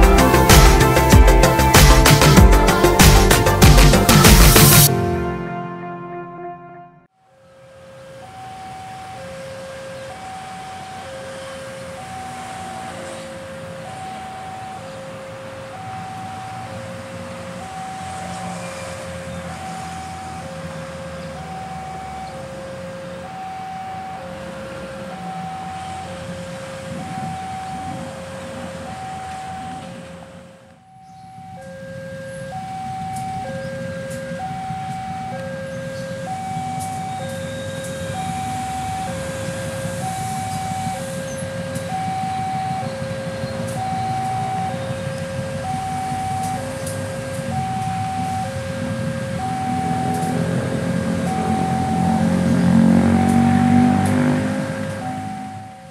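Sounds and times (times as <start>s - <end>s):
two-tone crossing alarm: 0.0s - 55.9s
diesel locomotive rumbling: 11.8s - 55.8s.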